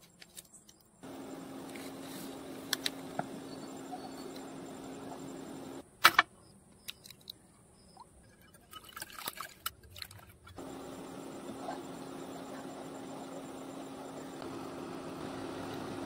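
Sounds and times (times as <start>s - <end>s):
stove pan humming and hissing: 1.0s - 5.8s, 10.6s - 16.0s.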